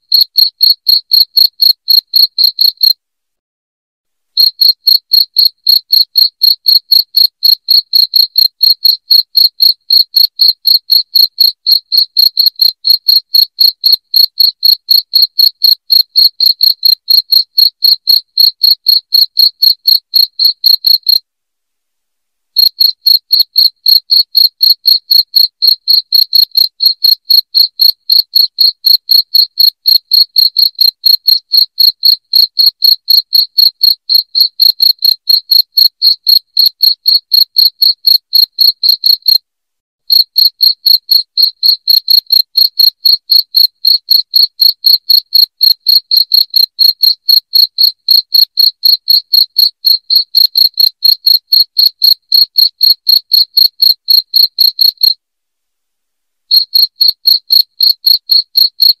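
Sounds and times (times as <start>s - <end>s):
crickets chirping: 4.4s - 9.8s.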